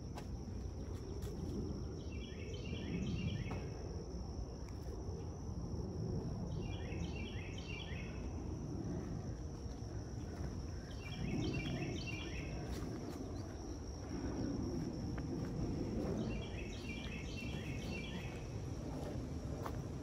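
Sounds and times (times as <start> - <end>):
footsteps and rustling on trail: 0.0 - 2.0, 8.9 - 20.0
songbird singing: 0.0 - 3.7, 6.5 - 8.4, 9.8 - 19.1
high insect drone: 0.0 - 20.0.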